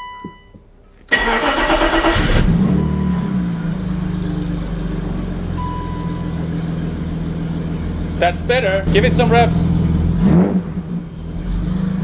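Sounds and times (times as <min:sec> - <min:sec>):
car engine idling: 0:01.1 - 0:12.0.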